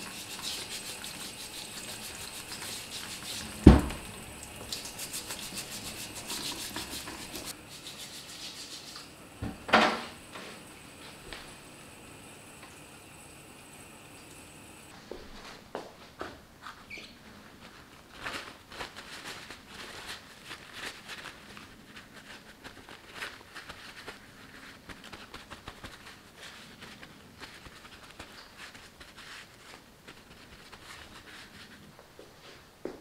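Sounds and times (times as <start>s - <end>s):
paper towel rustling: 0.0s - 12.1s, 16.6s - 32.7s.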